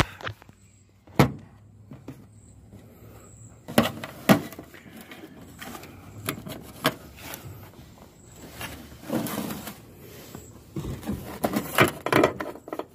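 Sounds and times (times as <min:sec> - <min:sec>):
knocks and clunks of tools: 0:10.8 - 0:12.9.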